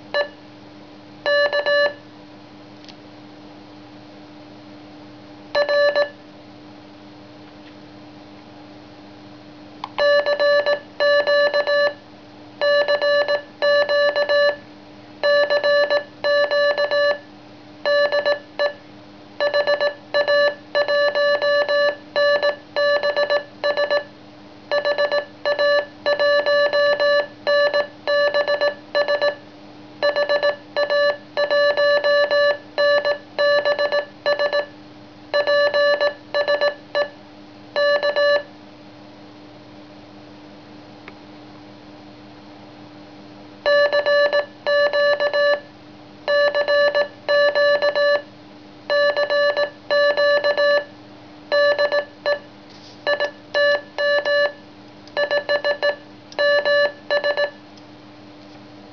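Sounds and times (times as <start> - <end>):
morse code beeps: 1.3 - 2.0, 5.6 - 6.2, 10.0 - 12.0, 12.6 - 14.6, 15.2 - 17.2, 17.9 - 18.8, 19.4 - 24.1, 24.7 - 29.4, 30.0 - 34.7, 35.4 - 37.1, 37.8 - 38.5, 43.7 - 45.6, 46.3 - 48.2, 48.9 - 50.9, 51.5 - 52.4, 53.1 - 54.6, 55.2 - 57.6.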